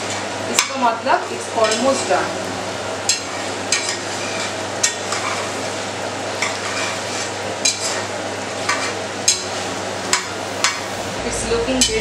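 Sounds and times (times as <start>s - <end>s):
curry sizzling: 0.0s - 12.0s
metal spatula scraping a pot: 6.4s - 8.1s.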